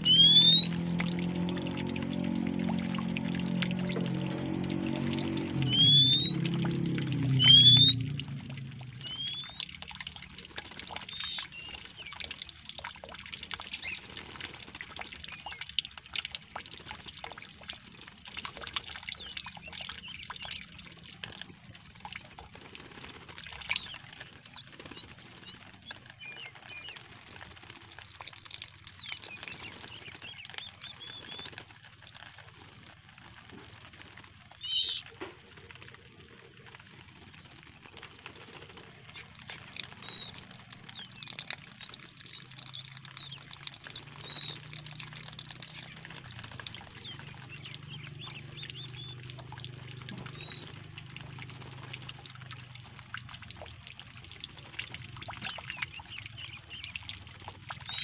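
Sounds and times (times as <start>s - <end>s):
loud bird call: 0.0s - 0.8s, 5.6s - 6.4s
birds chirping and trilling: 0.0s - 12.3s, 13.6s - 14.0s, 18.3s - 22.2s, 23.5s - 27.0s, 27.6s - 31.5s, 34.6s - 35.0s, 39.0s - 51.0s, 54.3s - 58.0s
bird wings flapping in a cage: 22.3s - 26.0s, 37.4s - 41.0s.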